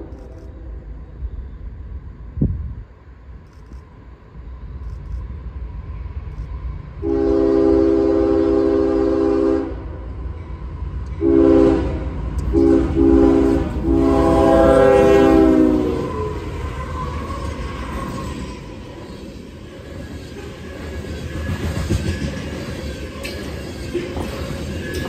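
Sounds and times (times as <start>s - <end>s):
train rumble: 0.0s - 25.0s
train air horn blasts: 7.0s - 10.0s, 11.2s - 16.7s.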